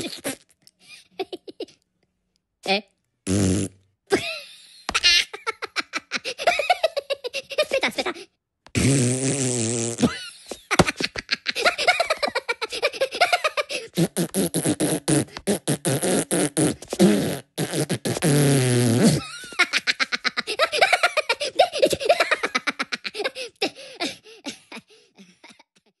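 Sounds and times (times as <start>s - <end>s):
comic fart noise: 0.0s - 0.6s, 3.2s - 3.9s, 8.7s - 10.3s, 13.8s - 19.3s
cartoon giggly voices: 0.0s - 1.8s, 4.1s - 8.3s, 10.0s - 14.3s, 19.1s - 25.6s
high-pitched cackling laughter: 0.0s - 1.8s, 4.1s - 8.3s, 10.0s - 14.0s, 19.2s - 25.7s.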